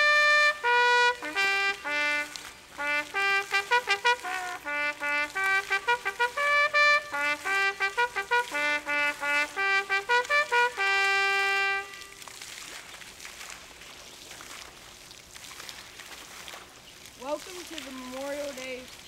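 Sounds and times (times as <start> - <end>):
solo trumpet playing: 0.0 - 12.3.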